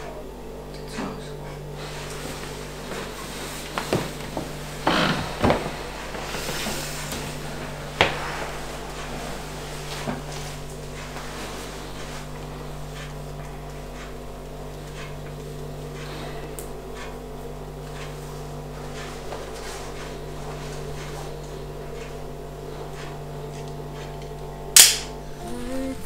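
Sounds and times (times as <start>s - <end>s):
low electrical hum: 0.0s - 26.0s
sharp loud click: 24.8s - 25.1s.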